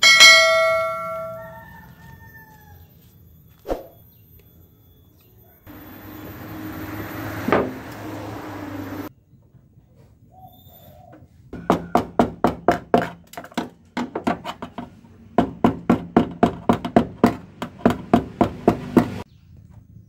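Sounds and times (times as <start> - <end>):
rapid tapping on metal panel: 11.6 - 19.2.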